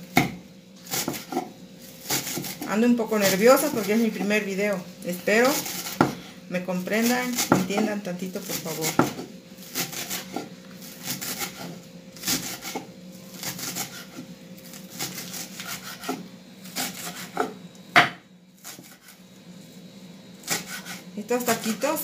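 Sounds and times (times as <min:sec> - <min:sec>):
knife chopping on wooden board: 0:00.1 - 0:01.5, 0:02.1 - 0:04.3, 0:05.4 - 0:06.2, 0:07.3 - 0:07.9, 0:08.8 - 0:14.2, 0:15.0 - 0:16.2, 0:16.8 - 0:19.1.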